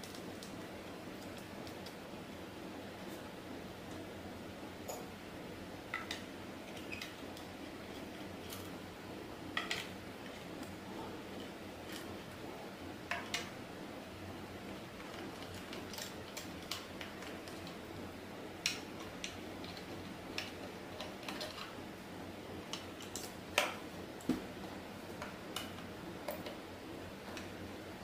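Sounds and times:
steady low hiss: 0:00.0 - 0:28.0.

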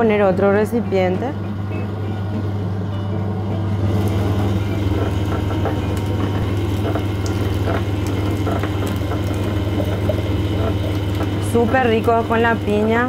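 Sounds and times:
electric press humming: 0:00.3 - 0:13.0
juice trickling into glass: 0:04.0 - 0:12.3
cane crushing cracks and clicks: 0:05.3 - 0:11.4.

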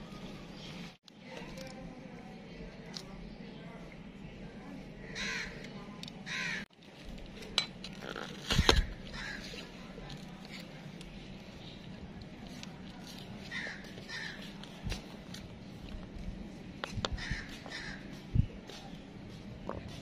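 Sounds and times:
crow cawing: 0:05.1 - 0:05.6, 0:06.3 - 0:06.6, 0:09.1 - 0:09.5, 0:13.5 - 0:14.4, 0:17.2 - 0:18.0.

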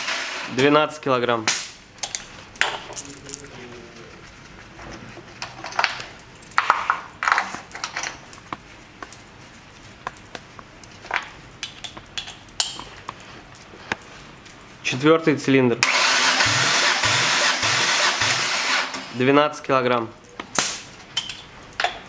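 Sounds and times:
gloved hands rustling: 0:01.8 - 0:14.9
light metallic clicks and clinks: 0:02.0 - 0:03.6.

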